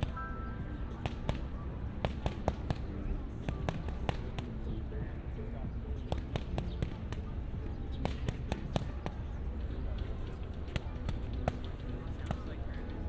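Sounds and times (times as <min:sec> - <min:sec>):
boxing gloves slapping punch mitts: 0:01.0 - 0:04.6, 0:06.0 - 0:09.2.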